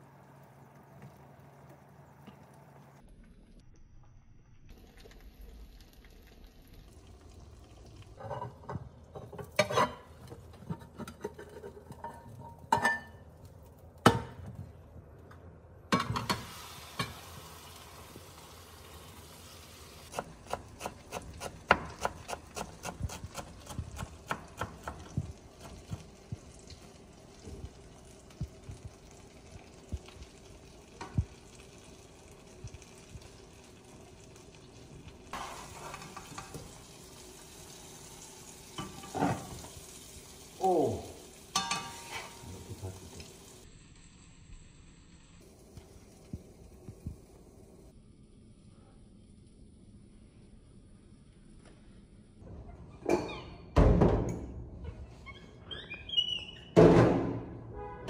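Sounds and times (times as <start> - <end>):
spatula scraping pan: 8.2 - 13.0, 35.4 - 36.5
food sizzling in a frying pan: 16.0 - 47.9
kitchen utensils knocking: 41.6 - 42.7.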